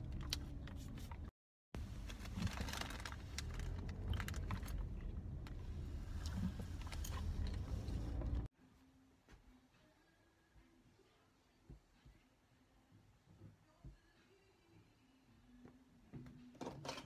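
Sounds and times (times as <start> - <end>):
car road and engine rumble: 0.0 - 8.5.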